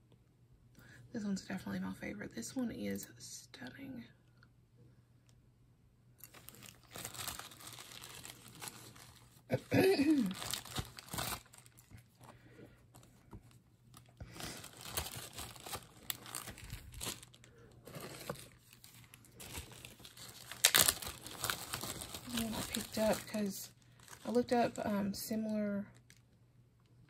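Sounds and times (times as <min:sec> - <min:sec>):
plastic bag crinkling: 0:06.2 - 0:25.0.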